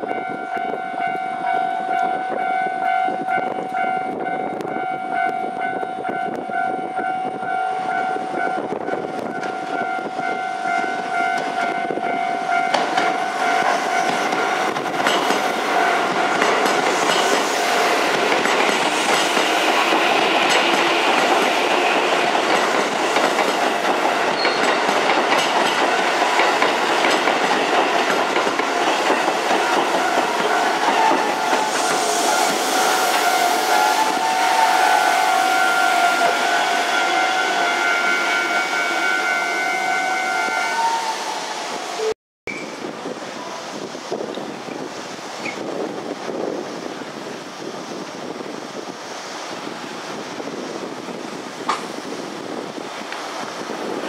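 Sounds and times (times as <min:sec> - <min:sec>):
level crossing warning bell: 0:00.0 - 0:08.7, 0:09.3 - 0:14.1
train wheels clattering over rail joints: 0:12.7 - 0:31.9.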